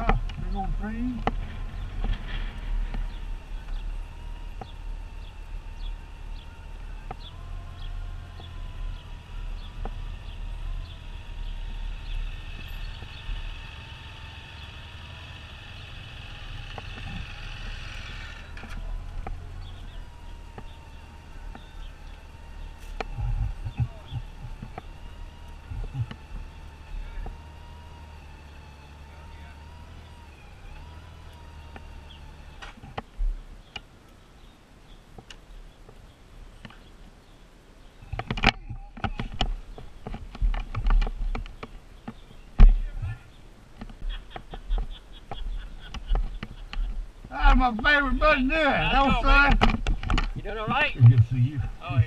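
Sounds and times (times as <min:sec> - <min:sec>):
motorcycle engine running low: 0:00.0 - 0:33.5.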